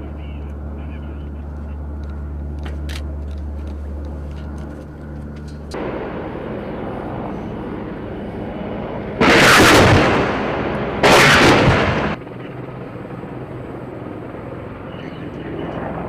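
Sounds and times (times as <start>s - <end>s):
helicopter in flight: 0.0s - 16.0s
weapons fire bursts: 9.2s - 12.2s.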